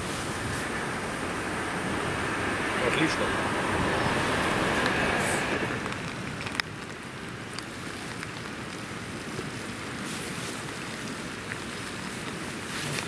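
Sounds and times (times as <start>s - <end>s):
river rushing: 0.0s - 13.0s.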